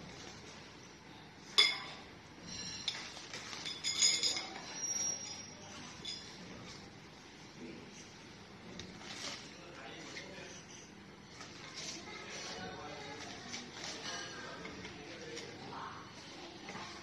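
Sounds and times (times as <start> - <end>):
metal tubes clinking: 1.6 - 6.4.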